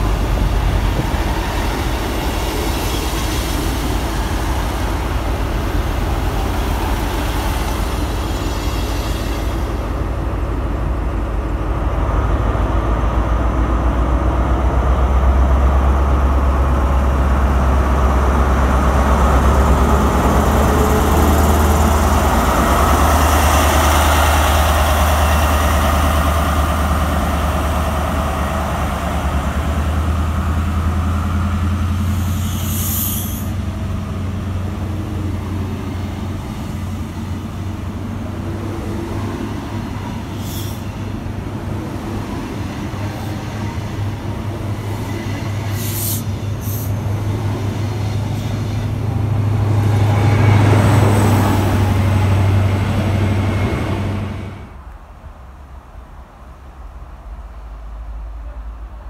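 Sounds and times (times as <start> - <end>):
diesel locomotive engine drone: 0.0 - 59.0
train coaches rolling by: 0.0 - 59.0
short high hisses: 32.1 - 33.6, 40.4 - 40.9.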